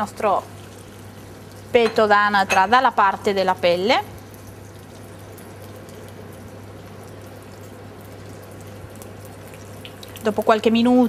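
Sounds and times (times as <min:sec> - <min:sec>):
meat sizzling in a pan: 0:00.0 - 0:03.2.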